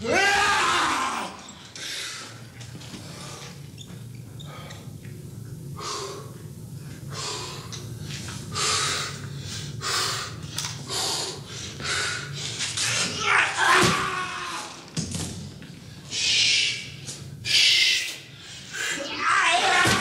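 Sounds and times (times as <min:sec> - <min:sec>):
low hum: 0:00.0 - 0:13.2
man breathing heavily: 0:01.8 - 0:03.7, 0:05.7 - 0:12.9, 0:16.0 - 0:19.1.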